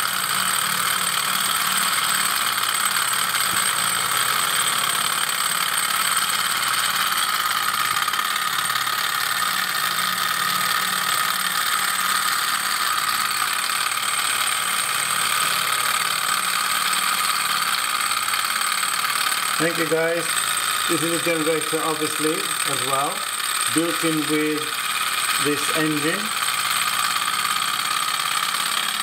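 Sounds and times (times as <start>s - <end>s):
stirling engine whirring: 17.3s - 28.8s.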